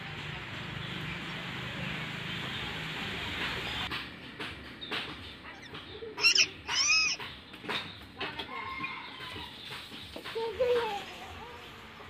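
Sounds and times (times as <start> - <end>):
parakeets calling: 5.4 - 7.6.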